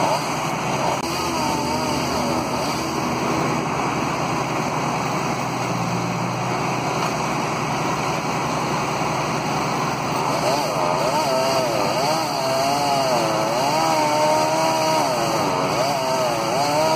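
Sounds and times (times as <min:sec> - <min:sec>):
road traffic noise: 0:00.0 - 0:16.9
low engine hum: 0:00.3 - 0:10.5.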